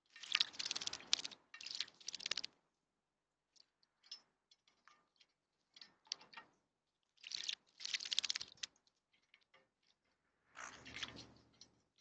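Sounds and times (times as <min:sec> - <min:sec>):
water drips: 0:00.0 - 0:02.6, 0:07.2 - 0:09.5
birds splashing in water: 0:00.2 - 0:02.5, 0:07.2 - 0:08.7.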